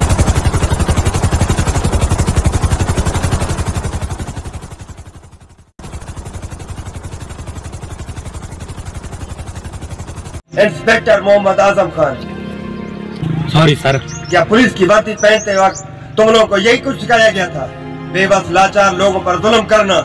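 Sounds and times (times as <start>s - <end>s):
helicopter rotor thumping: 0.0s - 10.5s.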